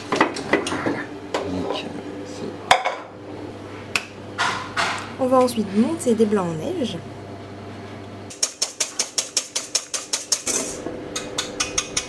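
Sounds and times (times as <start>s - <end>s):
whisk clicking against metal bowl: 8.3s - 10.6s.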